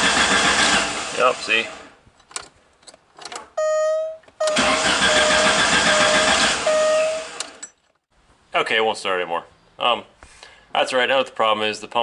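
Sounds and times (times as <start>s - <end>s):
car engine cranking: 0.0s - 3.6s, 4.3s - 8.0s
ignition clicks: 2.2s - 7.7s.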